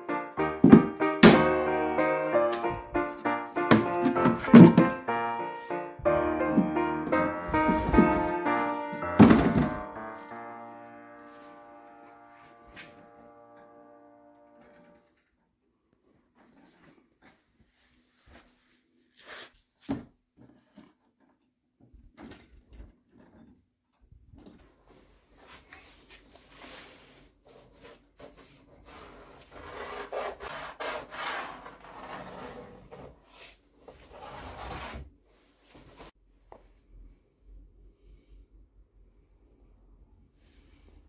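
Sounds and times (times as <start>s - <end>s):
cardboard knocking on wood: 0.6s - 1.4s, 3.7s - 5.0s
cardboard scraping on plywood: 3.6s - 5.0s, 25.6s - 36.2s.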